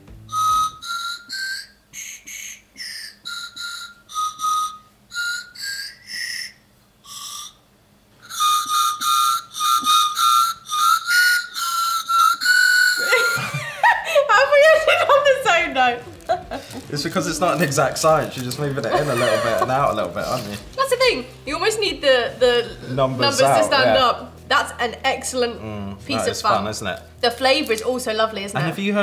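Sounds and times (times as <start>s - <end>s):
lollipop whistles tooting tune: 0.2s - 13.6s.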